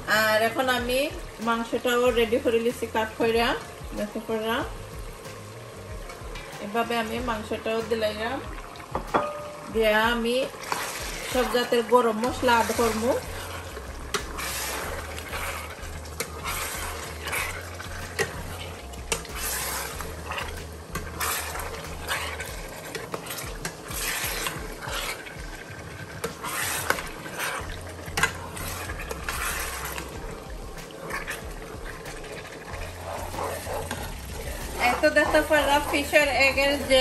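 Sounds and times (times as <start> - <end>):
meat frying: 0.0 - 37.0
spoon clinking against pot: 9.0 - 9.6
metal spoon scraping a pot: 10.4 - 25.5, 26.2 - 37.0.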